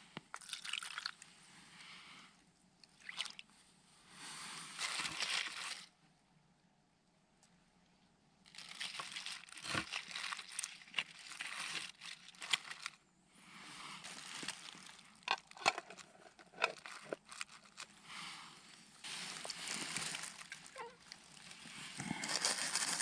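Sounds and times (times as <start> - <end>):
rustling: 4.4 - 5.9, 8.5 - 13.0, 13.8 - 23.0.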